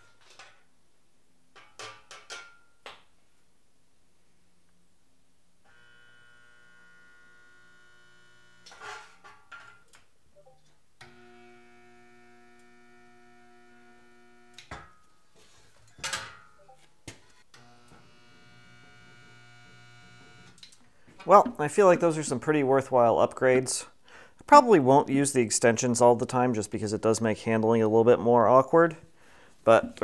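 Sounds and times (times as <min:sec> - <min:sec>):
spot welder transformer humming: 0:05.7 - 0:08.8, 0:11.0 - 0:14.7, 0:17.5 - 0:20.7.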